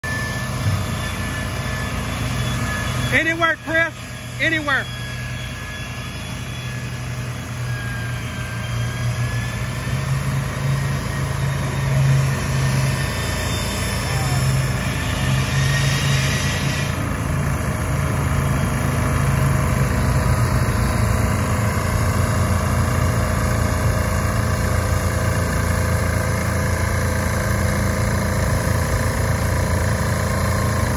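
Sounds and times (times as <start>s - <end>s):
heavy engine running: 0.0s - 30.9s
hiss: 15.0s - 17.0s.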